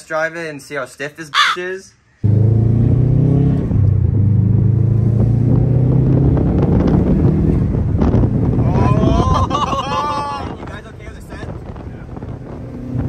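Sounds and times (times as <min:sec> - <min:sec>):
road noise: 0:00.0 - 0:13.0
car engine running while driving: 0:02.2 - 0:09.4.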